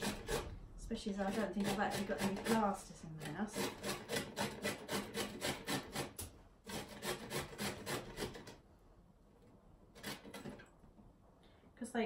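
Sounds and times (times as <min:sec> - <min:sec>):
carrot grating on metal grater: 0:00.0 - 0:08.6, 0:09.9 - 0:10.6.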